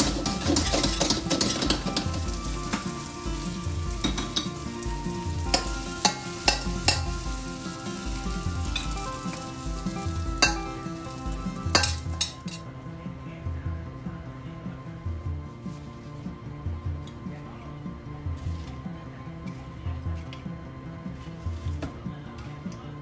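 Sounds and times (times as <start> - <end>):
metal spatula scraping pan: 0.0 - 4.7, 5.4 - 7.3
food sizzling in frying pan: 0.0 - 12.6
spatula clinking against pan: 5.5 - 7.2, 10.4 - 10.7, 11.7 - 12.6.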